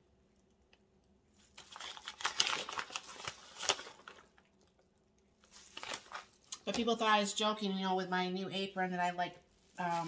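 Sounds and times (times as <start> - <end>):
plastic crinkling: 1.3 - 7.1, 9.2 - 10.0.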